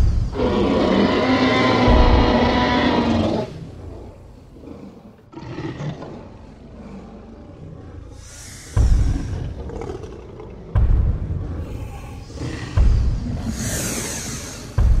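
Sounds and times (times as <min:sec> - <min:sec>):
dinosaur roar: 0:00.3 - 0:10.8.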